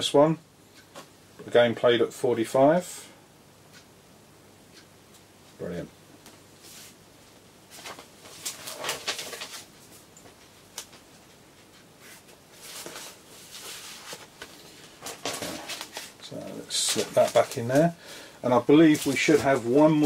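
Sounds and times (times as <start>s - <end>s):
paper and card rustling: 7.7s - 10.0s, 11.7s - 17.9s, 18.8s - 20.0s.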